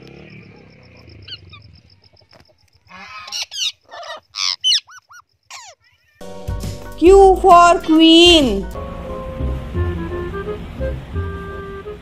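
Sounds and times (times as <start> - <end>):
parrots squawking and screeching: 2.9 - 6.2.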